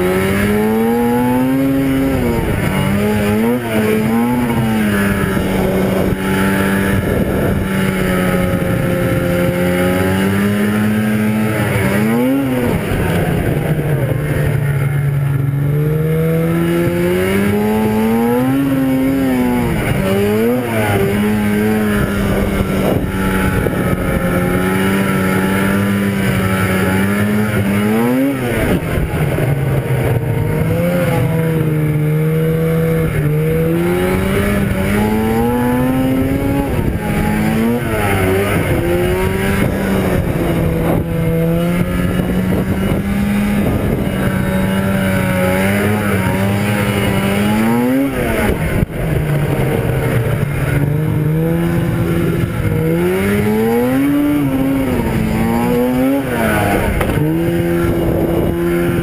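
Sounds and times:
snowmobile engine revving: 0.0s - 59.0s
snowmobile engine running: 0.0s - 59.0s.

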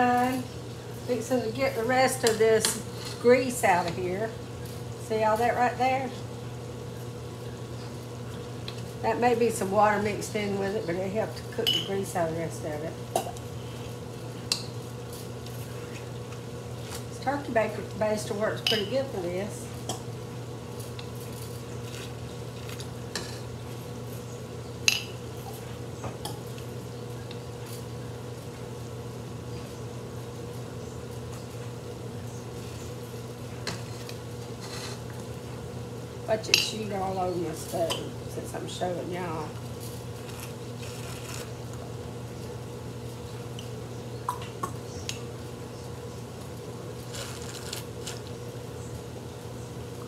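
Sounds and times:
steady low hum: 0.0s - 50.0s.

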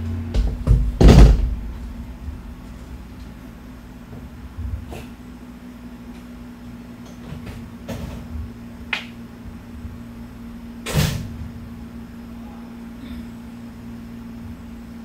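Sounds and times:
electric train hum and rumble: 0.0s - 15.0s
knocks and clunks: 0.3s - 2.4s.

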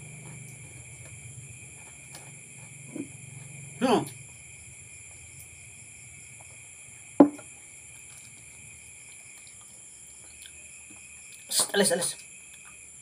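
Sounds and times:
crickets chirring: 0.0s - 13.0s
glass set down on table: 7.2s - 7.5s.

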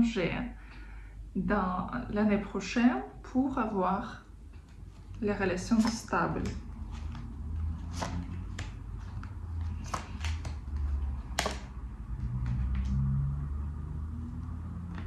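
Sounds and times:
cards clicking on a tabletop: 5.8s - 13.0s.

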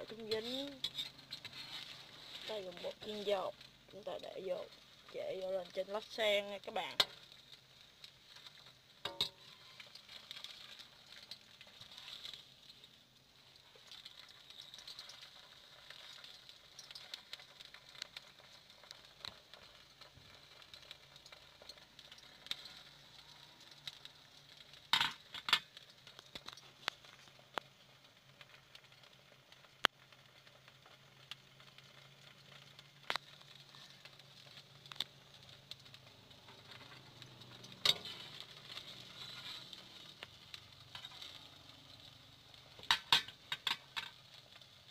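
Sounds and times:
spatula scraping wok: 0.0s - 6.1s, 36.5s - 44.3s
oil sizzling: 0.0s - 44.9s.

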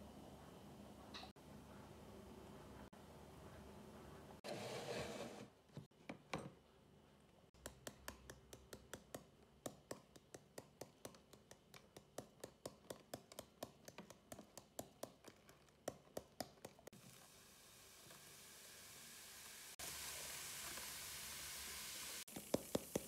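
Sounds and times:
baking soda tapping into plastic tub: 7.6s - 16.9s, 22.3s - 23.0s.

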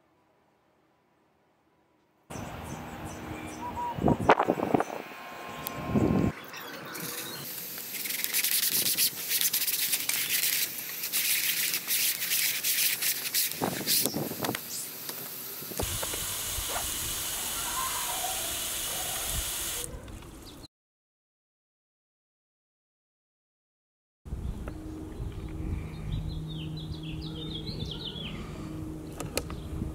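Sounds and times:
steady hiss: 6.9s - 19.9s
brush rasping across screen mesh: 7.9s - 14.1s.

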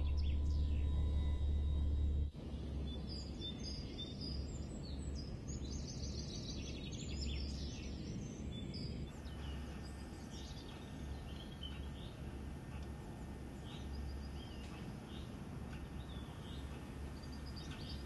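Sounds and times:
birds chirping and singing: 0.0s - 18.0s
steady low hum: 0.0s - 18.0s.

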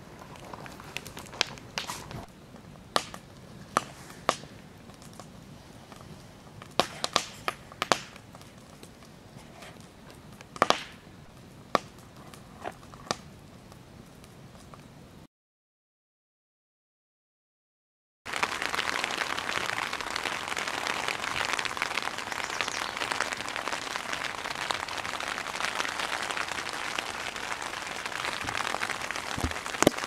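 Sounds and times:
campfire crackling and popping: 0.0s - 15.0s, 18.3s - 30.0s
low steady fire hiss: 0.0s - 15.3s, 18.3s - 30.0s.

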